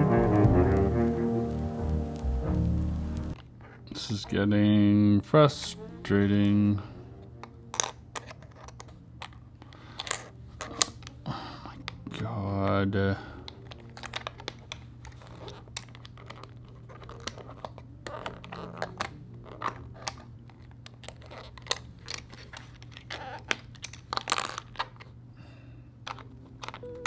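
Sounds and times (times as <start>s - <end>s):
plastic puzzle pieces clicking: 7.4s - 11.2s, 13.4s - 25.1s, 26.0s - 27.0s.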